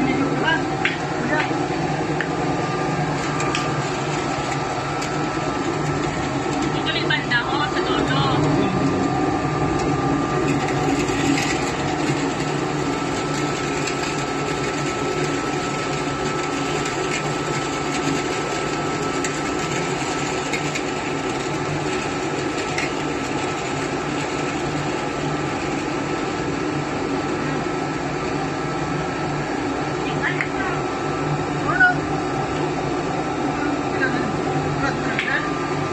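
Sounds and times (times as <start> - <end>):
machine hum: 0.0 - 35.9.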